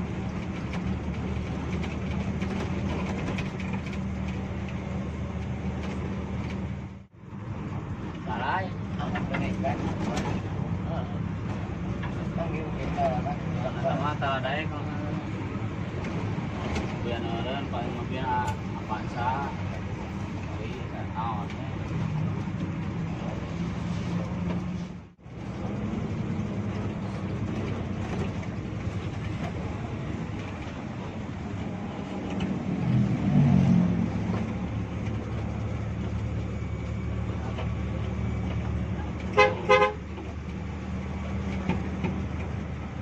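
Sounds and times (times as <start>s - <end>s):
bus engine running: 0.0s - 43.0s
bus horn toots: 39.3s - 40.1s.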